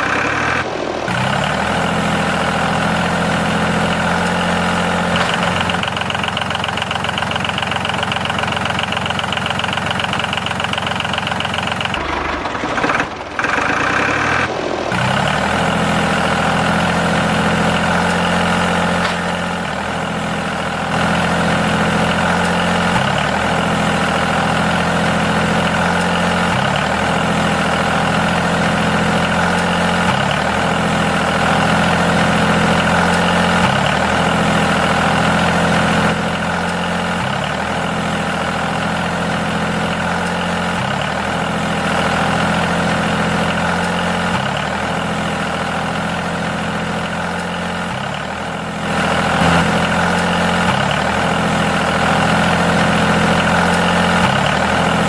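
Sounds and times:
tractor engine idling: 0.0s - 55.0s.

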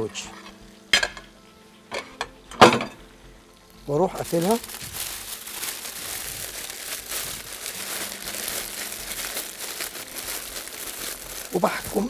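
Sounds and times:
foil crinkling: 4.0s - 12.0s.

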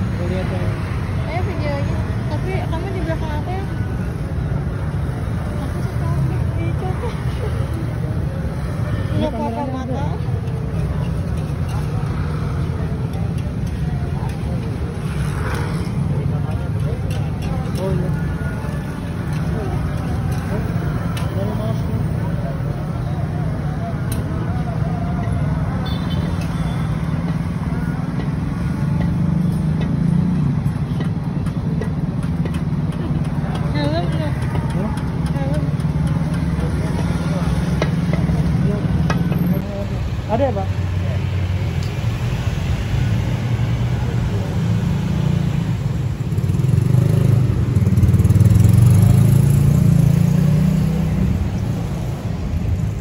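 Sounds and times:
road traffic rumble: 0.0s - 53.0s.

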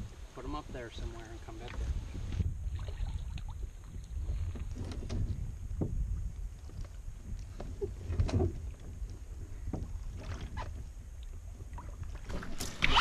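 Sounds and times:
steady low rumble: 0.0s - 12.3s
water sloshing against hull: 0.0s - 13.0s
knocks and bumps on canoe: 4.3s - 6.1s, 7.5s - 8.9s.

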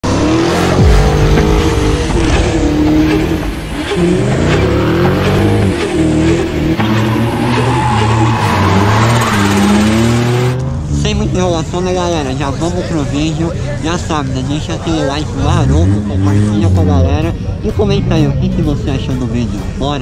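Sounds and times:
car engines revving: 0.0s - 20.0s
tyres squealing on asphalt: 3.0s - 10.4s.

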